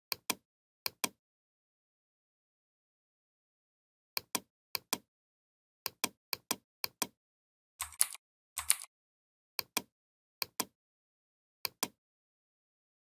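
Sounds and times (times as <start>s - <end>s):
computer mouse clicks: 4.2s - 5.1s, 7.8s - 8.9s, 9.6s - 10.8s, 11.6s - 12.0s
keyboard clacks: 7.8s - 8.9s.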